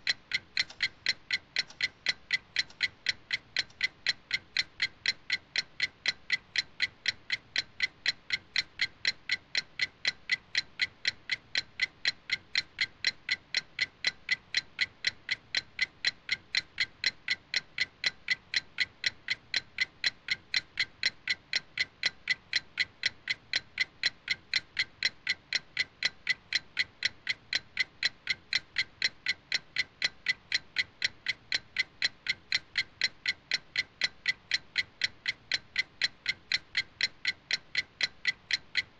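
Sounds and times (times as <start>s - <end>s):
clock ticking: 0.0s - 38.9s.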